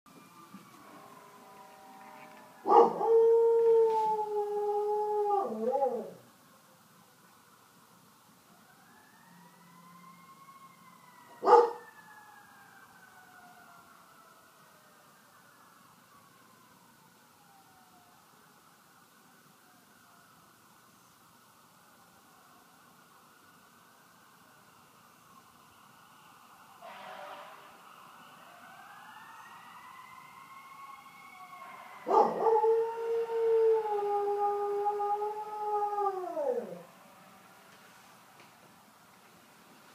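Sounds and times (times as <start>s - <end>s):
fire truck siren wailing: 0.1s - 6.2s, 8.6s - 18.7s, 25.4s - 37.6s
dog howling: 2.6s - 6.2s, 32.0s - 36.9s.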